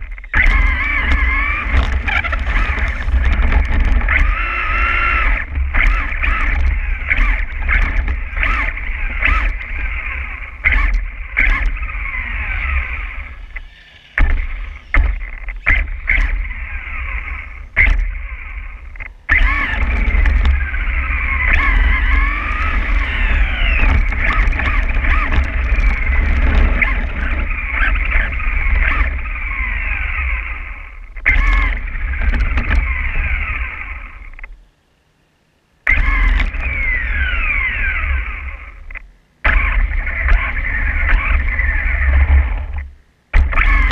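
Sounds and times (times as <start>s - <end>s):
clicks and knocks from bumps: 0.0s - 9.7s, 18.8s - 29.2s, 31.1s - 33.0s
low rumble of tyres: 0.0s - 34.7s, 35.8s - 43.9s
electric motor and gears whining: 0.0s - 34.8s, 35.5s - 43.9s.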